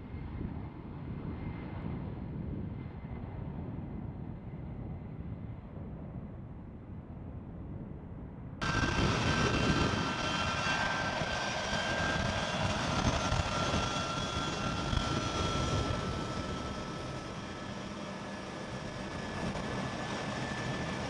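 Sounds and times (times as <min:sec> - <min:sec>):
jet engines roaring with whine: 0:08.6 - 0:21.0.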